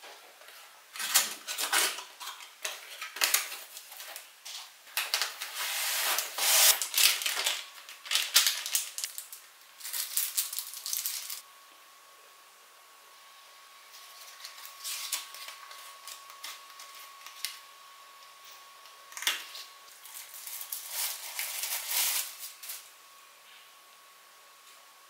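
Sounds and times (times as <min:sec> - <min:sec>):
foam and plastic bags rustling: 0:01.0 - 0:11.4, 0:20.0 - 0:22.8.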